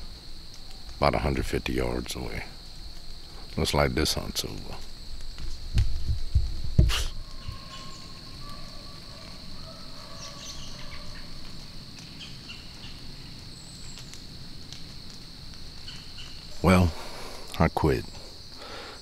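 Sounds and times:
crickets and insects chorus: 0:00.0 - 0:19.0
faint bird chirps: 0:07.0 - 0:11.4.

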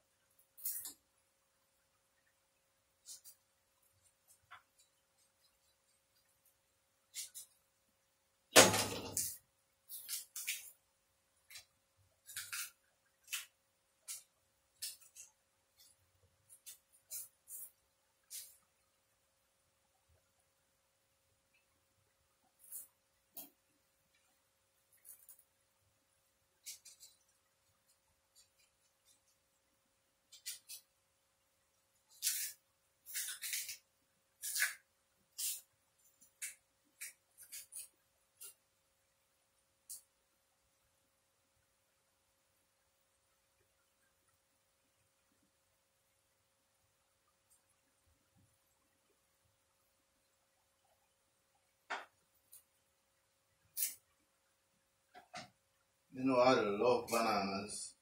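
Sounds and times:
faint steady hum: 0:00.0 - 0:58.0
banana skin scraping: 0:12.2 - 0:13.5, 0:32.1 - 0:38.6.

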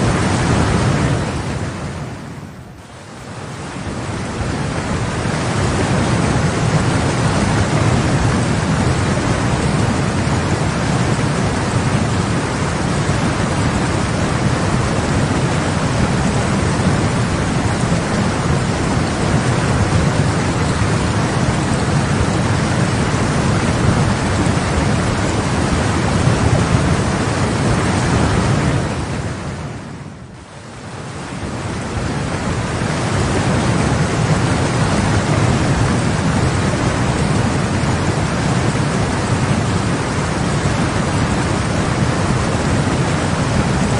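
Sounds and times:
floodwater rushing roar: 0:00.0 - 0:43.9.

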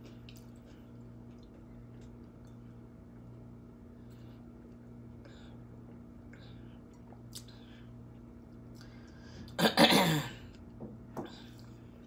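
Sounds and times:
woman burping: 0:09.6 - 0:10.4.

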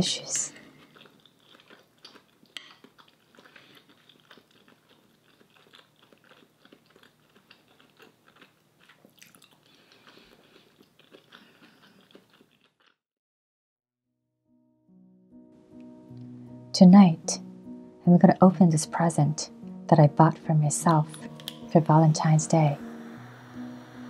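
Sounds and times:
chewing food: 0:00.4 - 0:13.0.

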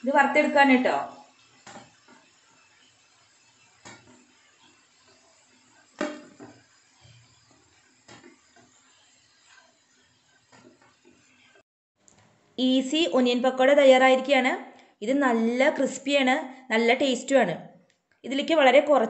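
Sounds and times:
faint sizzle of frying oil: 0:00.0 - 0:12.9.

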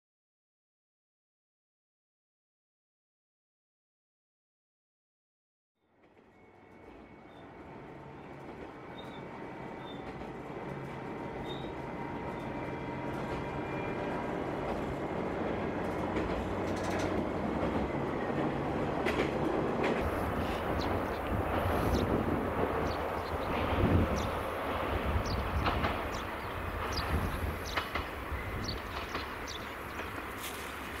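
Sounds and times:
railcar engine hum and wheel rumble: 0:05.9 - 0:31.0
wheels clicking over rail joints: 0:08.3 - 0:31.0.

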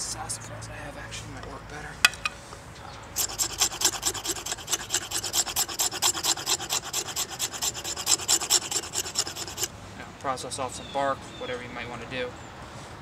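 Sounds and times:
knife scraping wooden stick: 0:03.2 - 0:09.7.

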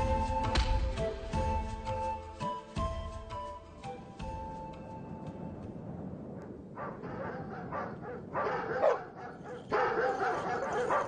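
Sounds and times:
dogs barking and yipping: 0:06.4 - 0:11.0.

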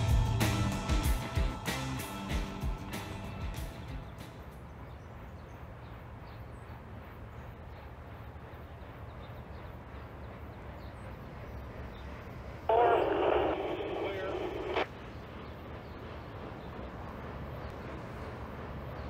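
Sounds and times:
music: 0:00.0 - 0:04.6
steady low rumble: 0:00.0 - 0:19.0.

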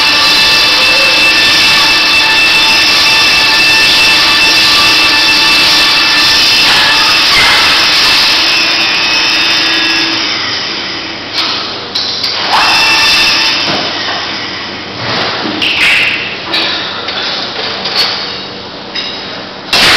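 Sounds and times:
dehiding equipment whine and hiss: 0:00.0 - 0:19.9.

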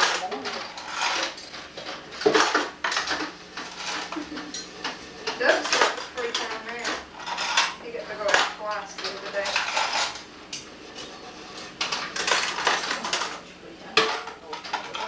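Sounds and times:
dishes clattering in sink: 0:00.0 - 0:15.0.

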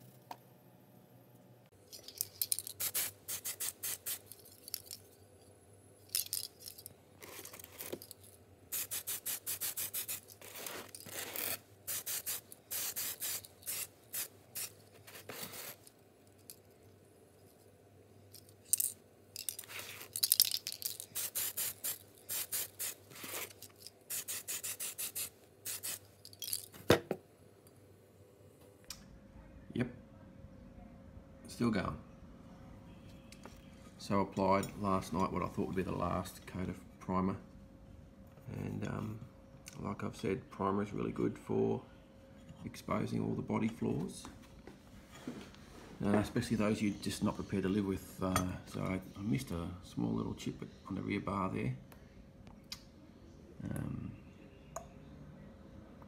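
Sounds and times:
scratchy rubbing strokes: 0:08.8 - 0:15.9.

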